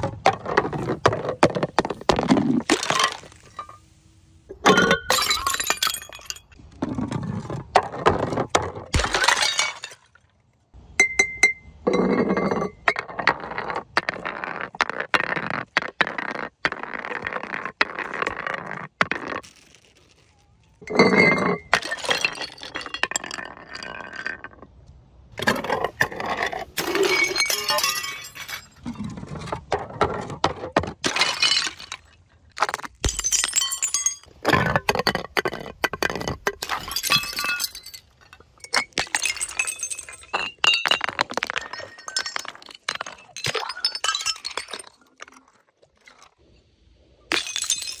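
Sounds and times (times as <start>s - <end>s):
glass bottles rolling down stone steps: 0.0s - 3.9s, 4.5s - 10.2s, 11.0s - 46.4s, 47.3s - 48.0s
glass shattering: 8.9s - 10.1s, 26.8s - 28.9s, 33.0s - 34.3s, 36.6s - 45.1s, 47.3s - 48.0s.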